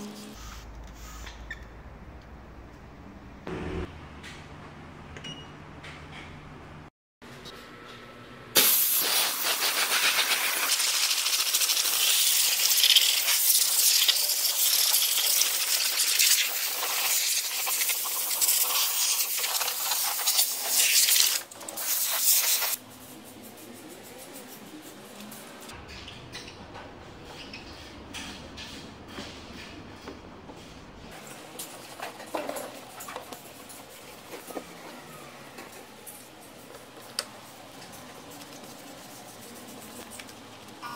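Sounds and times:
steam cleaner hissing: 8.6 - 22.8.

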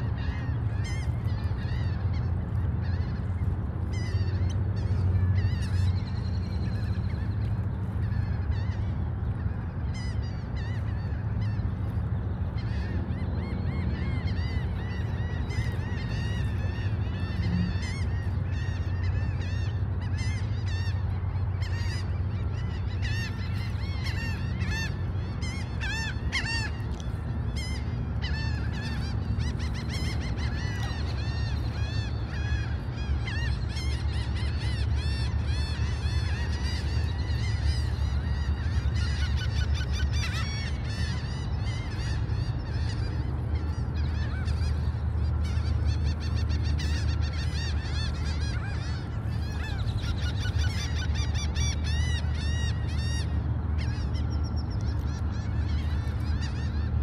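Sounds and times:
gulls calling: 0.0 - 57.0.

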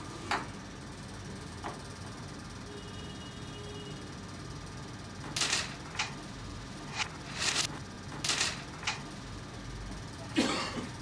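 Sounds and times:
sharp clicks of carrom pieces: 5.3 - 6.2, 6.9 - 9.1.

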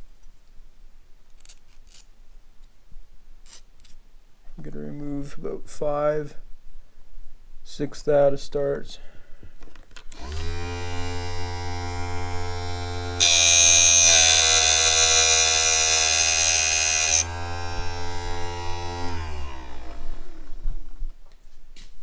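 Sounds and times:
grinder motor humming: 10.2 - 20.9.

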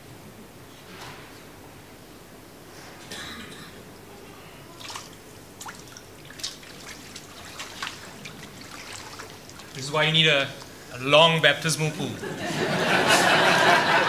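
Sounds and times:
splashes of people in water: 4.8 - 9.8
water dripping and trickling: 4.8 - 10.9.

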